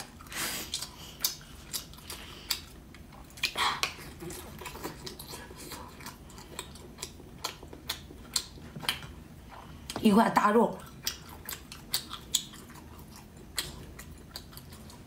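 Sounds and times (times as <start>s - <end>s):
person chewing food: 0.0s - 10.0s, 10.8s - 15.0s.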